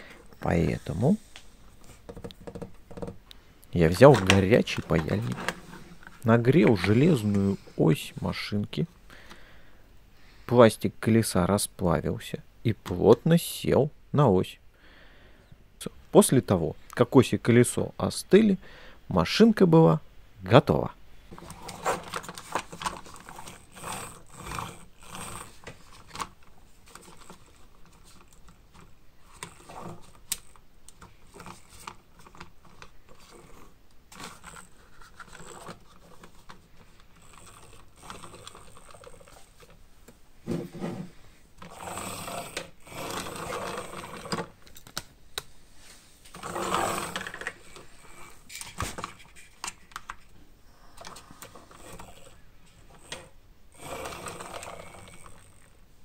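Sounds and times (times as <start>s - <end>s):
plastic wheels rolling on wood: 3.8s - 7.6s, 21.3s - 39.8s, 40.4s - 44.6s, 46.3s - 49.4s, 51.0s - 55.8s.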